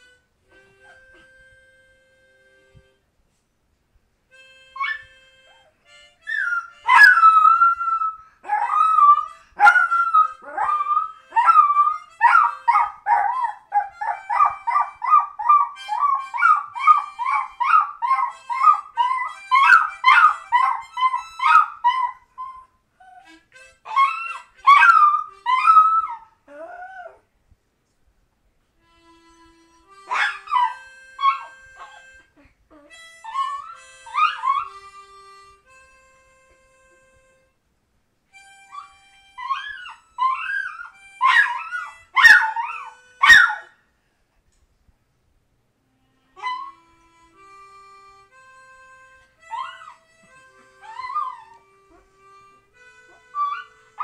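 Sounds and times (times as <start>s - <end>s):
harmonica: 0.0s - 3.1s, 4.3s - 26.7s, 28.8s - 37.7s, 38.3s - 44.0s, 45.8s - 54.0s
dog howling and yipping: 6.2s - 27.2s, 30.1s - 32.1s, 32.8s - 34.8s, 38.7s - 43.7s, 46.4s - 46.8s, 49.5s - 50.0s, 50.8s - 52.1s, 53.1s - 54.0s.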